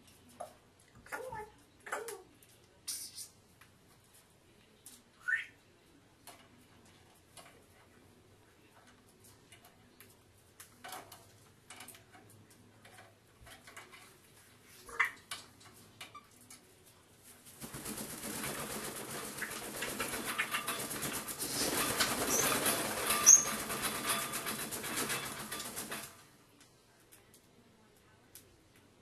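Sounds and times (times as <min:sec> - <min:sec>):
parrot chirp: 0:05.2 - 0:05.6, 0:14.9 - 0:15.3
parrot squeaks: 0:05.2 - 0:05.6, 0:23.2 - 0:23.6
parrot wings flapping: 0:17.4 - 0:26.2.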